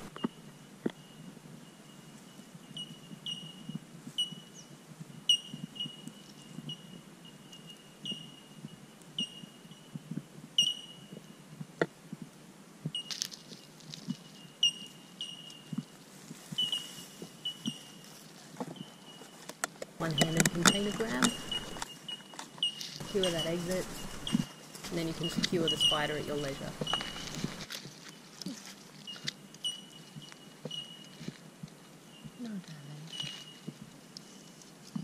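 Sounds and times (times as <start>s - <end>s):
scratching in dry grass: 15.6s - 31.5s.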